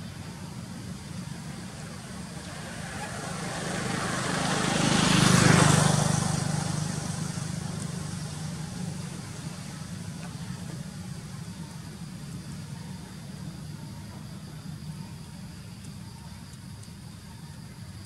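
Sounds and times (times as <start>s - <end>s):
vehicle passing by: 0.2s - 12.1s.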